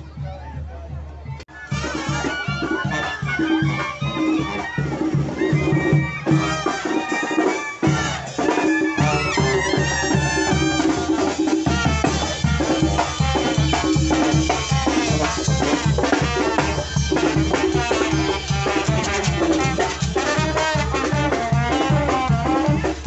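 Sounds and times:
brass band playing dance tune: 1.5s - 23.0s
conga: 1.5s - 23.0s
snare drum: 1.5s - 23.0s
bass drum: 7.8s - 23.0s.

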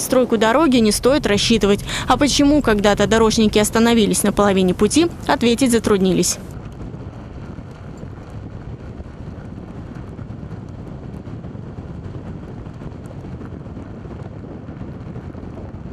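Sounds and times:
wind on microphone: 0.0s - 15.9s
tyre and road rumble: 0.3s - 10.4s.

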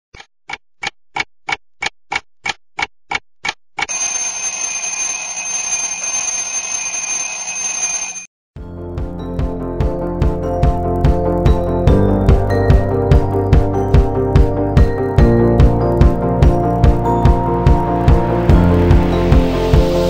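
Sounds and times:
clock ticking: 0.2s - 4.0s
alarm clock ringing: 3.9s - 8.3s.

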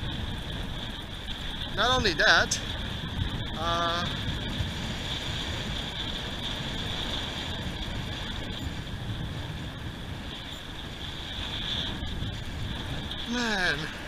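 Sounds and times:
wind and surf rumble: 0.0s - 14.0s.

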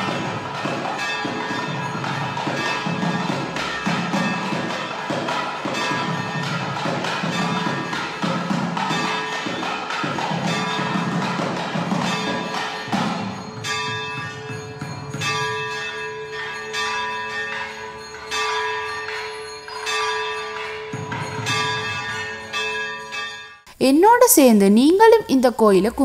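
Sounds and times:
temple bell ringing: 0.0s - 23.7s.

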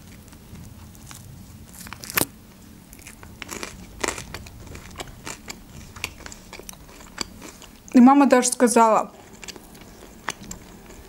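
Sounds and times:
chewing flatbread: 0.0s - 2.3s, 2.9s - 7.9s, 9.1s - 11.0s
crisp crust crunches: 0.1s - 2.3s, 2.9s - 7.8s.

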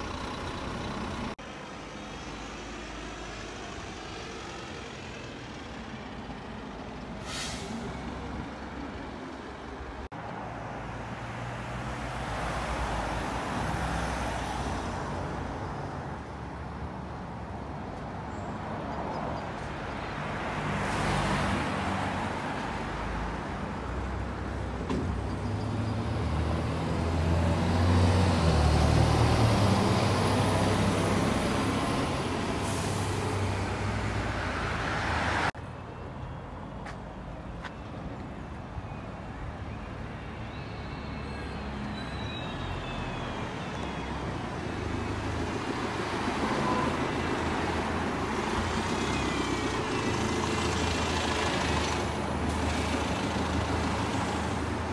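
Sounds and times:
diesel buses accelerating past: 0.0s - 54.9s
air brake hisses: 7.2s - 8.0s.

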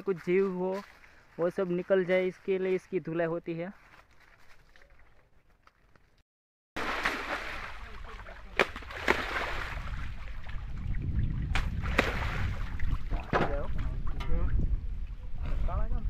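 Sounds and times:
water splashing in tank: 6.8s - 13.7s.

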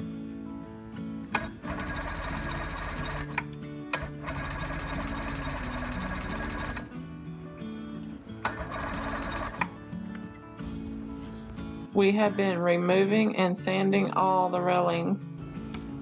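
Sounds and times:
background music with bass: 0.0s - 16.0s.

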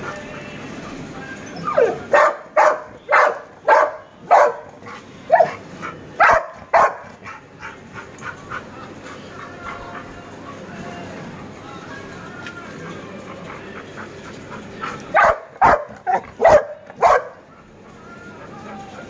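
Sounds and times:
large dog barking: 1.8s - 8.4s, 14.9s - 17.5s.

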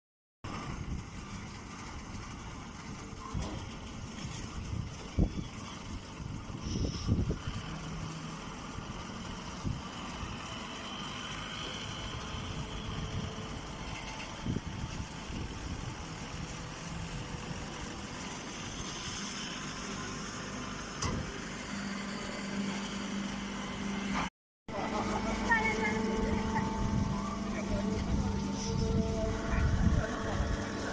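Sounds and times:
baling machine humming: 0.5s - 30.9s
low drone: 24.7s - 30.9s.

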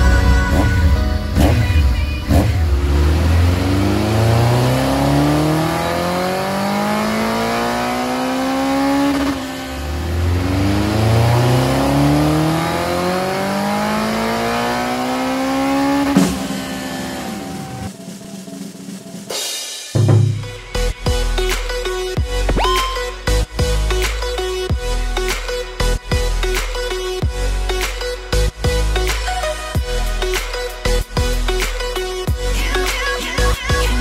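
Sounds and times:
motorcycle engine revving: 0.2s - 18.0s, 33.4s - 34.0s.

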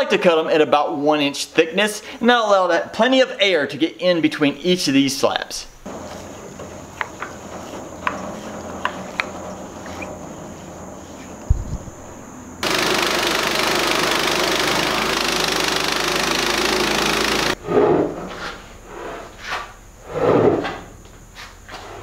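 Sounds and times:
sawmill engine running: 5.8s - 17.6s
thump: 11.5s - 11.9s
band saw cutting log: 12.6s - 17.6s.

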